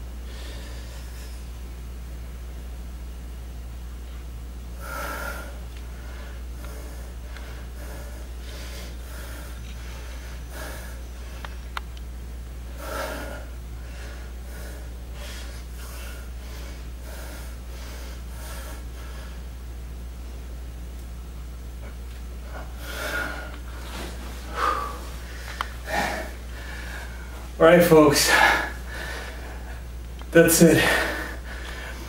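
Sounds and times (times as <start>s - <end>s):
steady low hum: 0.0s - 32.0s
man breathing hard: 0.2s - 1.5s, 4.8s - 11.8s, 12.7s - 19.5s, 22.4s - 32.0s.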